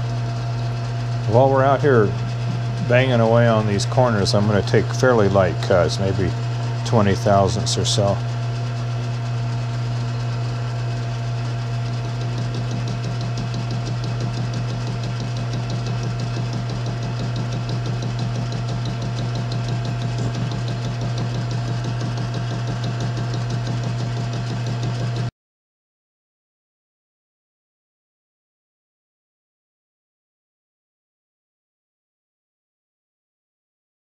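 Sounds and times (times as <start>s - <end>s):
fast ticking of lathe cutter: 0.0s - 25.3s
lathe motor hum: 0.0s - 25.3s.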